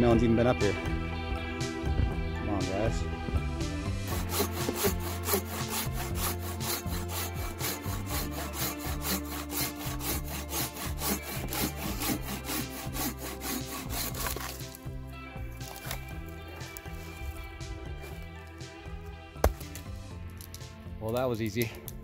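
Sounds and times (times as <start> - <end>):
background music: 0.0 - 22.0
hand saw cutting a branch: 4.1 - 18.3.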